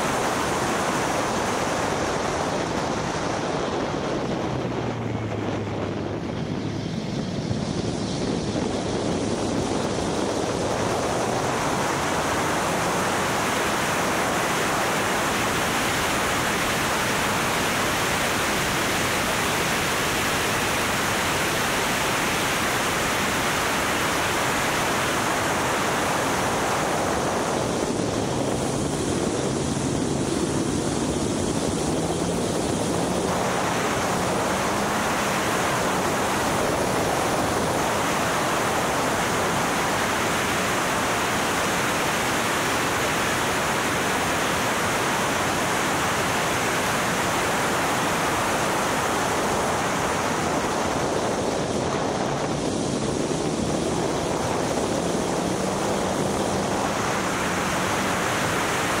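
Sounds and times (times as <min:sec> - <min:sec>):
wind rush over microphone: 0:00.0 - 0:59.0.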